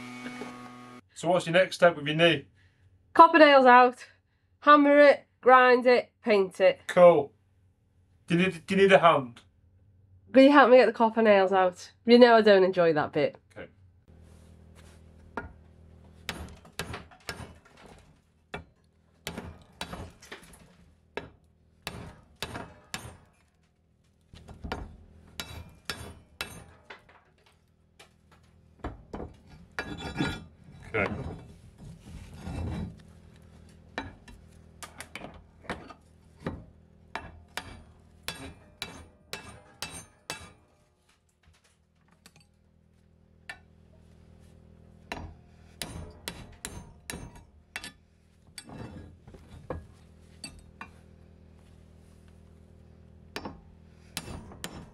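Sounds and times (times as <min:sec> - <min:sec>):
hammer striking metal: 0:24.7 - 0:27.0, 0:36.4 - 0:40.7, 0:45.1 - 0:48.0.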